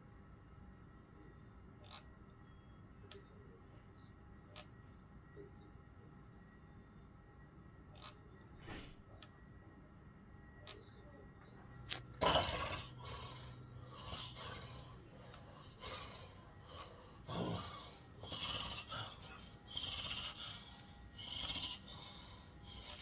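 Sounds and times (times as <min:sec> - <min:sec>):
person snoring and gasping: 0:12.2 - 0:15.0, 0:15.6 - 0:23.0.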